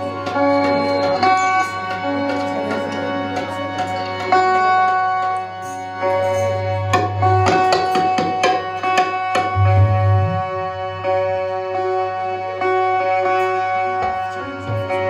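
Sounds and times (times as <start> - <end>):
harmonium reed notes: 9.6 - 11.1.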